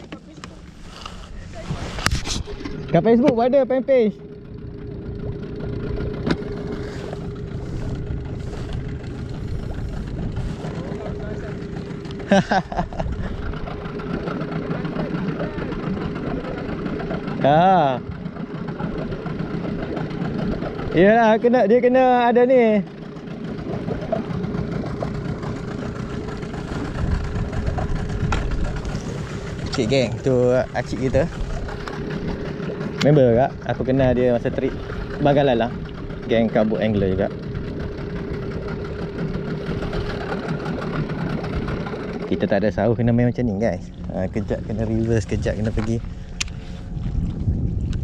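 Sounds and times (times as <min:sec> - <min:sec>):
low rumbling water: 0:00.0 - 0:48.0
small boat motor running: 0:00.0 - 0:48.0
wind noise: 0:26.8 - 0:31.7, 0:44.2 - 0:48.0.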